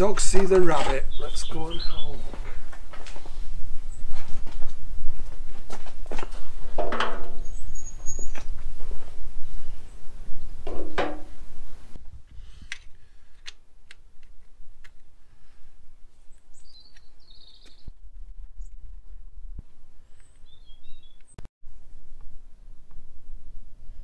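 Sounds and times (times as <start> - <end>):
bird chirps: 0.6 - 2.4, 7.3 - 8.5, 16.3 - 17.9, 20.2 - 21.4.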